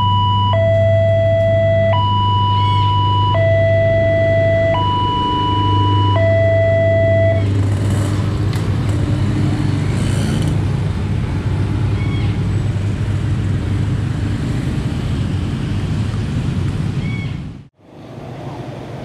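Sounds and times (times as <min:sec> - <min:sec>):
crossing alarm tone: 0:00.0 - 0:07.7
motorcycle engines pulling away: 0:02.5 - 0:16.9.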